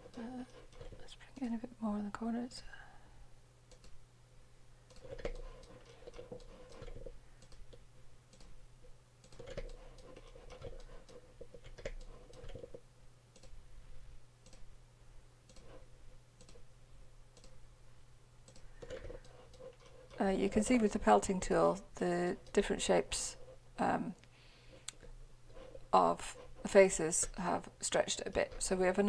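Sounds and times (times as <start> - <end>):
low electrical hum: 0.0 - 29.0
computer mouse clicks: 3.7 - 4.0, 4.9 - 8.6, 9.2 - 13.6, 14.4 - 14.7, 15.5 - 15.8, 16.4 - 16.6, 17.4 - 17.6, 18.4 - 21.0.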